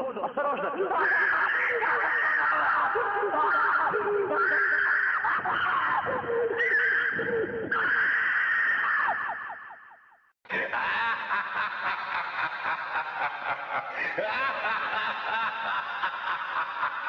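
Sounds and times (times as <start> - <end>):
rapid pulsing laughter: 0.0 - 7.8, 10.5 - 17.0.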